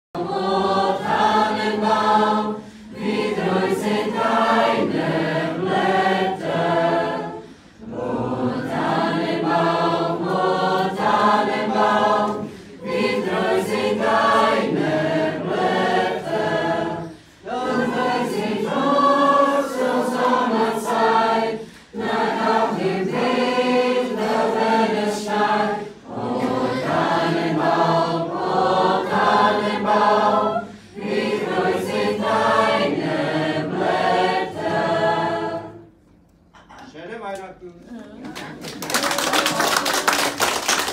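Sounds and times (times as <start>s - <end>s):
choir singing unaccompanied: 0.2s - 36.0s.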